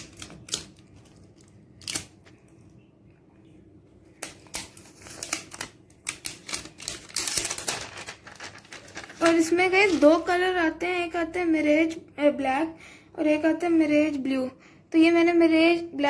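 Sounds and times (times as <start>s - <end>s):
plastic wrap crinkling and clicking: 0.0s - 2.6s, 4.2s - 10.3s.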